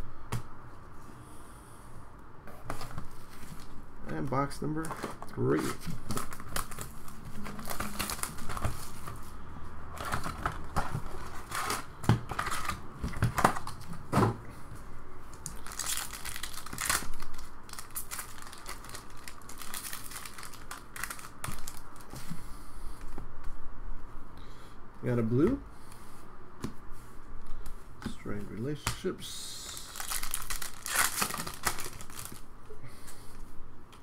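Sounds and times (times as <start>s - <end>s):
plastic wrap crinkling and tearing: 4.8s - 9.2s, 15.4s - 22.1s, 29.5s - 32.5s.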